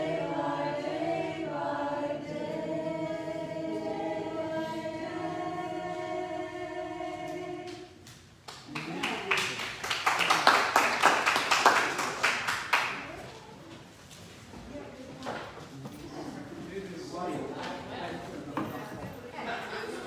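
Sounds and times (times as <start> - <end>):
group singing a hymn: 0.0 - 8.1
people clapping: 7.7 - 13.5.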